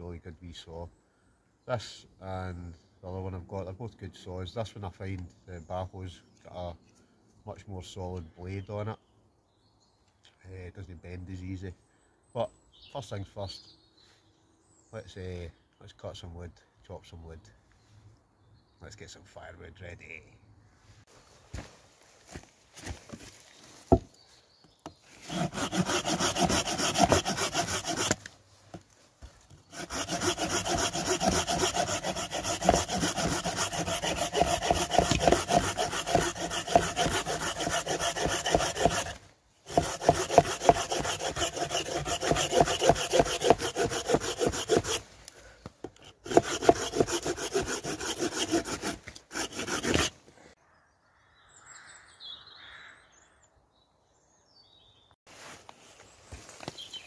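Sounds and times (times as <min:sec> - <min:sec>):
handsaw cutting a branch: 0:25.2 - 0:28.8, 0:29.6 - 0:45.1, 0:45.9 - 0:50.2.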